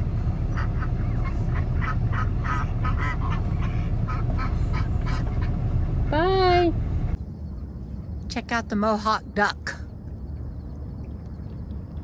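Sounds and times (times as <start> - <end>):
steady low rumble: 0.0 - 12.0
ducks quacking: 0.4 - 5.9.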